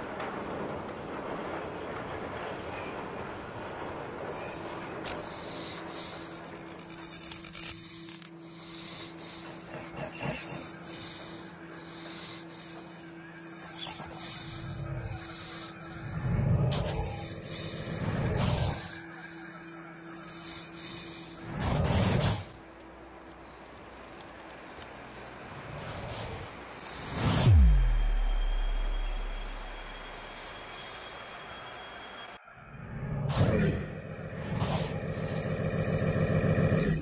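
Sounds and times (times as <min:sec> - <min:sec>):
repeating hissing pulses: 0:04.2 - 0:22.6, 0:25.9 - 0:31.6
steady synth drone: 0:04.6 - 0:21.8, 0:26.6 - 0:37.0
scraping noise texture: 0:25.6 - 0:31.8
heavy bass thumps: 0:27.5 - 0:29.9.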